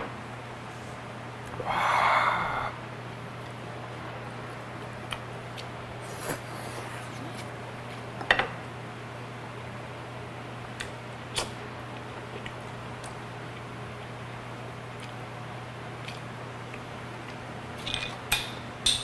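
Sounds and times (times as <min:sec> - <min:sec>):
steady low hum: 0:00.0 - 0:19.0
quiet chewing: 0:04.8 - 0:08.1, 0:10.8 - 0:14.2, 0:14.8 - 0:15.3, 0:16.0 - 0:17.5.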